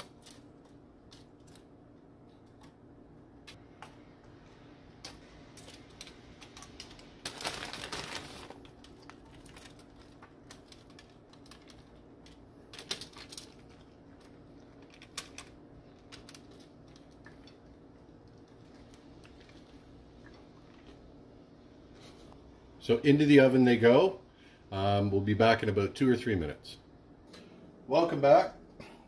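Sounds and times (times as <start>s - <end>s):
steady low hum: 0.0s - 29.0s
plastic bag rustling: 5.4s - 17.2s.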